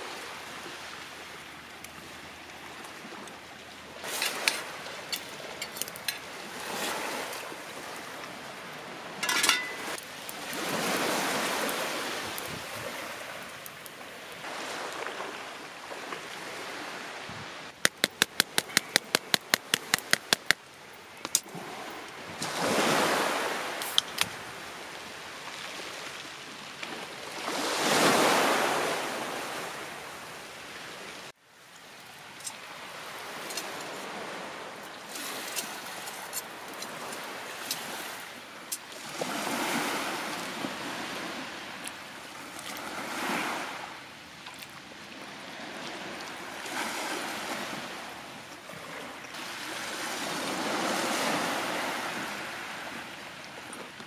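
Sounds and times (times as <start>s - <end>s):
sea waves washing onto shore: 0.0s - 54.0s
sharp taps: 17.8s - 20.6s.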